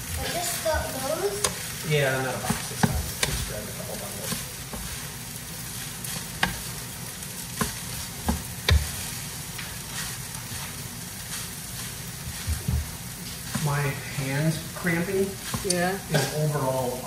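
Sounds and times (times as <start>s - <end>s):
fried rice sizzling in a pan: 0.0s - 17.0s
spatula knocking against pan: 2.5s - 3.4s, 7.6s - 9.0s.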